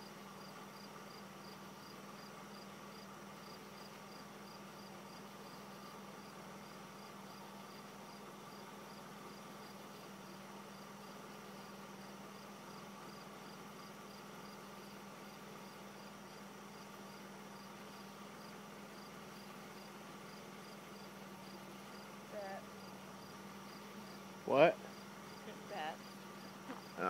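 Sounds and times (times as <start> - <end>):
crickets chirping: 0.0 - 27.0
low steady hum: 0.0 - 27.0.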